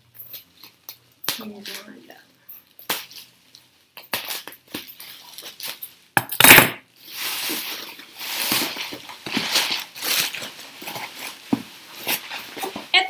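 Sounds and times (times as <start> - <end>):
bubble wrap crinkling: 7.0 - 13.0.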